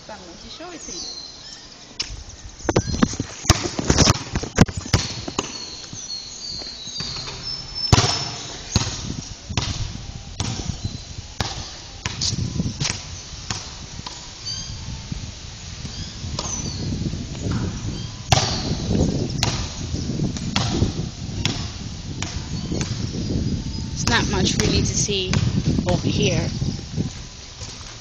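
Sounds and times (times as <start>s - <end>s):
high bird chirps: 0.4s - 3.1s, 4.8s - 9.4s, 10.0s - 13.4s, 14.4s - 14.9s, 15.9s - 20.3s, 22.4s - 25.2s.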